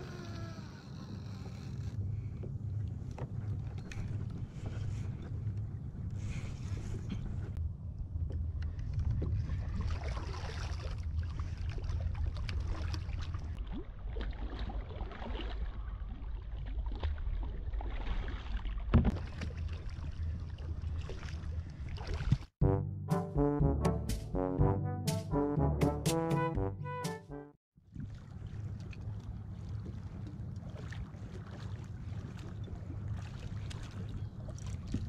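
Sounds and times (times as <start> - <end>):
water splashing against kayak: 8.8 - 22.5, 27.9 - 35.0.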